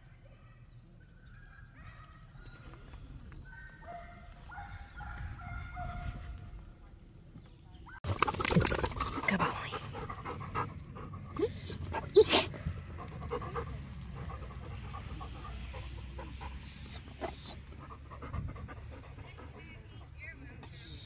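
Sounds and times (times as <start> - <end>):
dog panting: 8.1 - 21.0.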